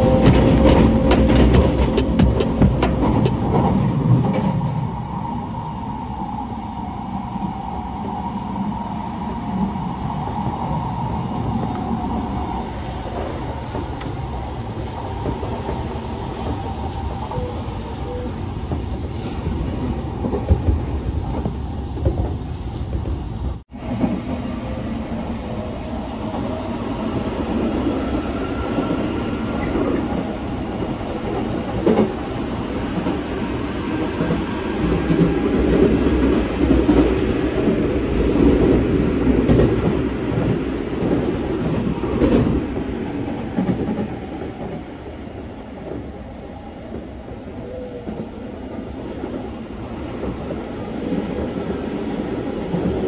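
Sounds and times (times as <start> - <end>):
rail joint clicks: 0.0 - 4.8, 12.9 - 24.4, 27.7 - 32.2, 34.0 - 46.1
train wheels rumbling on rails: 0.0 - 6.2, 6.9 - 53.0.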